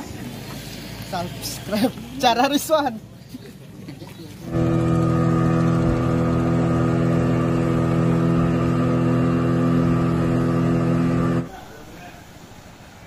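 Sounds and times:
speedboat engine drone: 0:04.4 - 0:11.7
rush of wind and water: 0:11.4 - 0:13.0.

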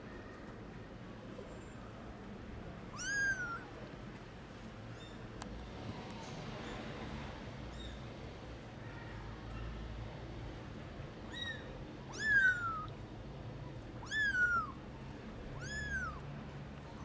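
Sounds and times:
kitten meowing: 0:02.9 - 0:03.7, 0:11.3 - 0:12.9, 0:14.0 - 0:14.8, 0:15.5 - 0:16.2.

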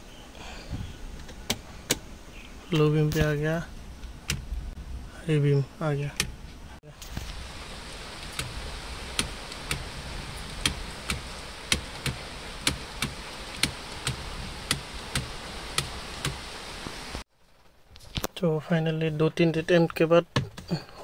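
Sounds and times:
low hum: 0:00.0 - 0:17.2
car indicator ticking: 0:08.2 - 0:16.4.

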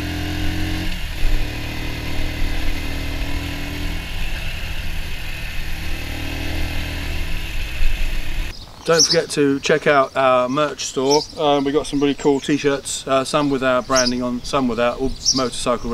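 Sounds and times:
motorcycle engine running: 0:00.0 - 0:08.5
wind and road noise: 0:00.0 - 0:15.9.

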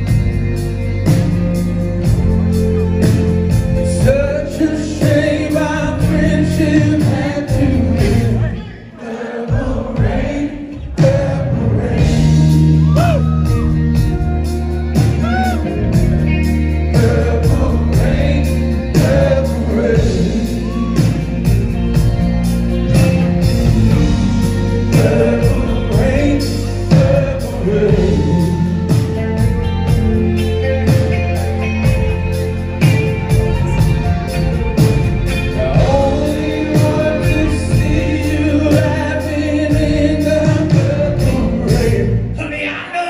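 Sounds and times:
live band playing: 0:00.0 - 0:43.0
people singing: 0:03.9 - 0:12.8, 0:16.7 - 0:21.7, 0:23.8 - 0:29.5, 0:34.8 - 0:43.0.

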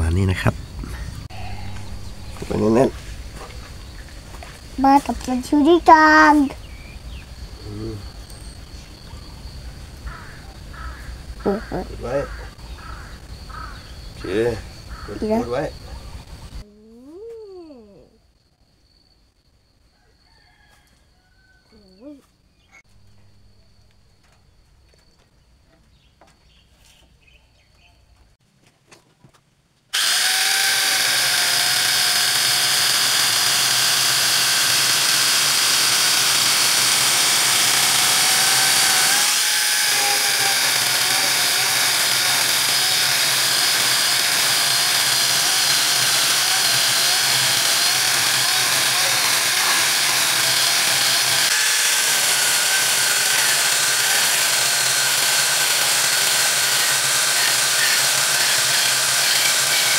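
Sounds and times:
angle grinder cutting wood: 0:00.8 - 0:06.9, 0:30.0 - 0:59.9.

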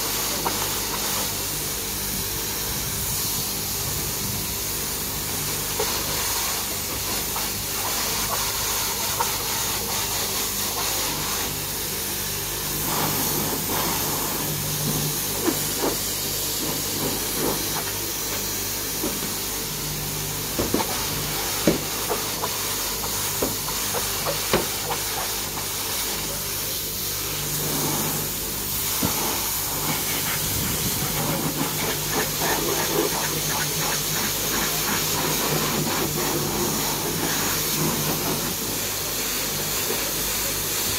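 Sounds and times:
pressure washer spraying water: 0:00.0 - 0:40.9.

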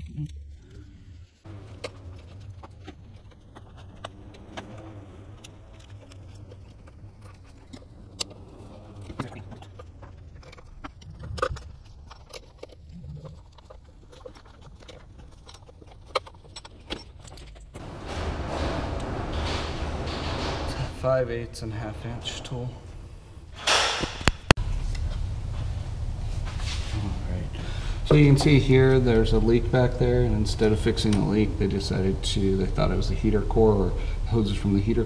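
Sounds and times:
steady low hum: 0:17.8 - 0:35.0.

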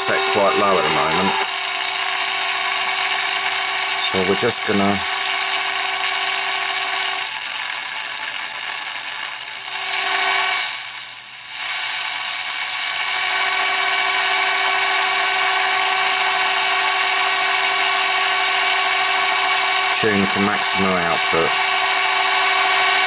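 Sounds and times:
low steady test tone: 0:00.0 - 0:07.3
radio speaker hiss: 0:00.0 - 0:10.9, 0:11.5 - 0:23.0.

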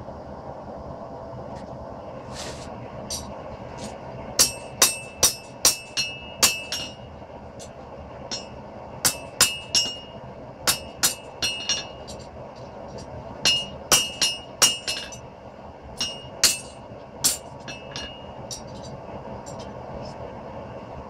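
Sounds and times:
steady hum: 0:00.0 - 0:21.0
hammer striking steel on anvil: 0:04.4 - 0:12.3, 0:13.4 - 0:15.2, 0:16.0 - 0:19.7.

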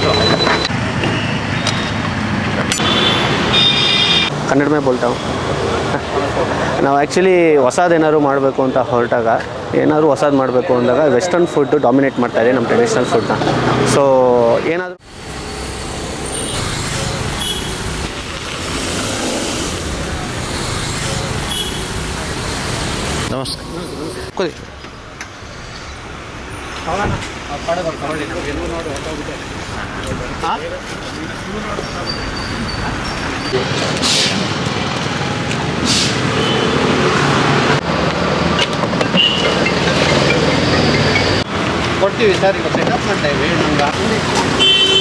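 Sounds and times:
street traffic noise: 0:00.0 - 0:45.0
short hisses: 0:35.8 - 0:36.3.

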